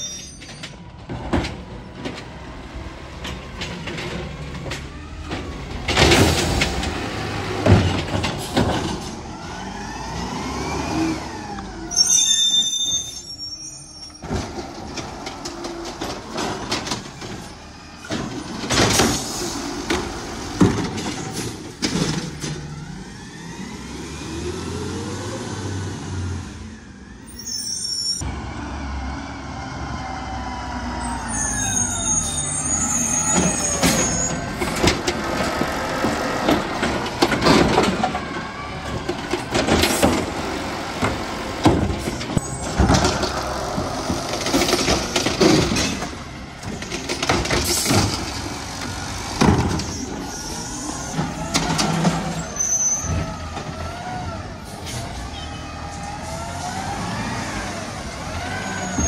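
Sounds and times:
knocks of lifting arm and carts: 0:00.6 - 0:10.3, 0:33.2 - 0:50.3, 0:51.1 - 0:52.4
diesel engine revving: 0:01.6 - 0:12.2, 0:14.4 - 0:27.2, 0:28.2 - 0:59.0
hydraulics whirring: 0:30.7 - 0:59.0.

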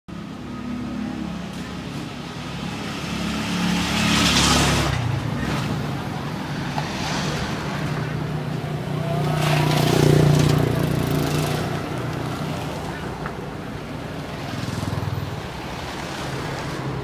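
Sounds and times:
traffic engine hum: 0:00.1 - 0:17.0
vehicle passing close by: 0:02.1 - 0:13.0.

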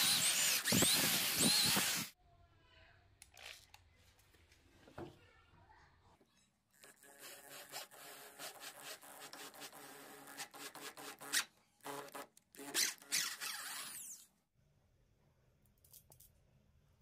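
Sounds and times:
electric drill boring wood: 0:00.0 - 0:02.2.

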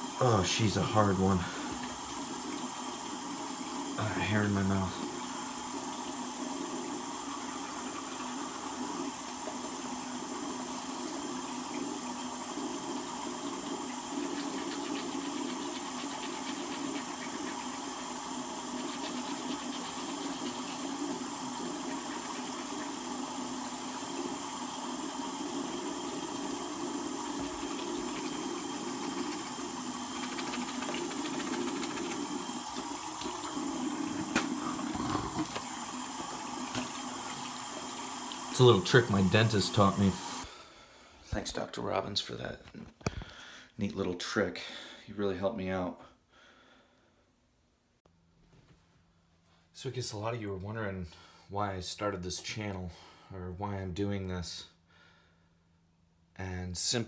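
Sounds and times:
faucet running: 0:00.0 - 0:40.5.

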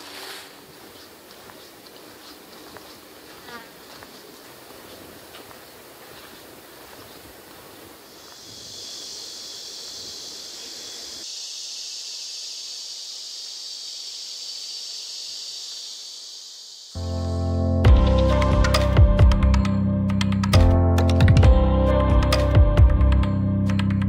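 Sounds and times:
insects buzzing: 0:00.0 - 0:17.5.

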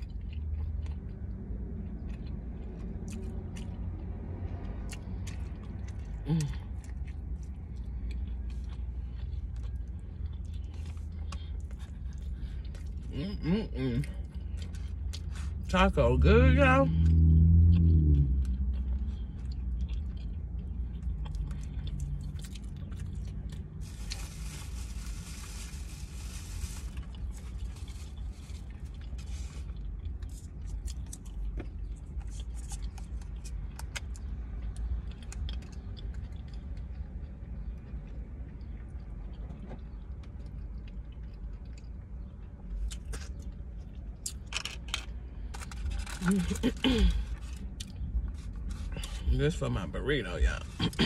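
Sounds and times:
chewing and biting crunchy food: 0:00.0 - 0:15.8, 0:16.6 - 0:51.0
steady low hum: 0:00.0 - 0:16.2.

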